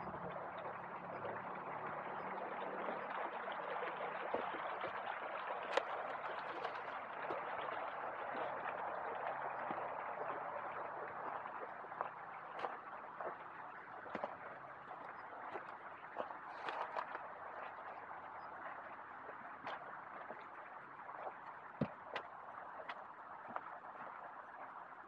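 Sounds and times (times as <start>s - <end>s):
river water flowing: 0.0s - 25.0s.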